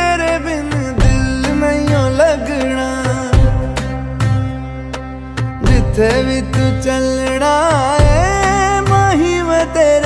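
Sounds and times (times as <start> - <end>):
percussion hits: 0.8 - 4.6, 5.4 - 6.8, 8.0 - 9.0.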